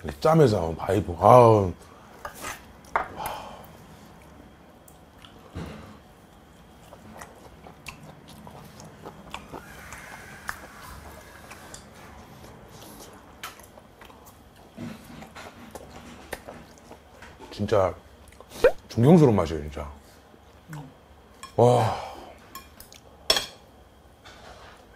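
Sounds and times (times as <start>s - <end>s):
man chewing: 2.2s - 17.4s.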